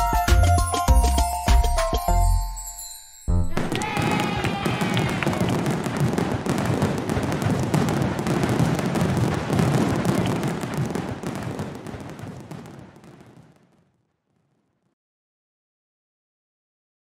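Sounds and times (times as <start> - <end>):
fireworks bangs and crackling: 3.5 - 14.9.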